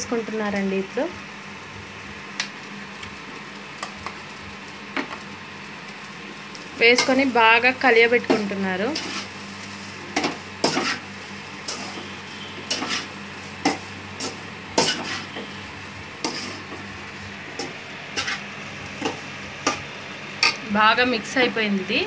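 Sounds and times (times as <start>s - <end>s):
metal spoon scraping a pan: 6.8s - 7.2s, 8.2s - 15.6s, 16.2s - 16.8s, 17.5s - 19.8s, 20.4s - 20.6s.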